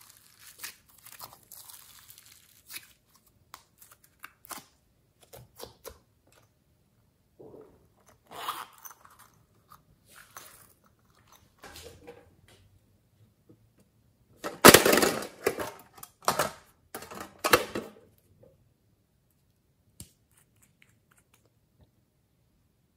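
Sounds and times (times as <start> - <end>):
handling plastic cases: 14.4 - 18.0.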